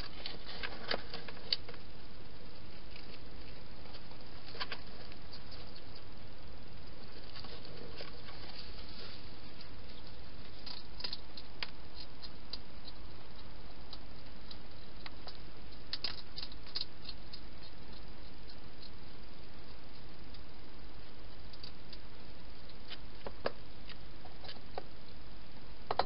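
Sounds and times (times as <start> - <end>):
steady hiss: 0.0 - 26.0
hedgehog eating clicks and crunches: 2.7 - 6.1, 9.5 - 25.2.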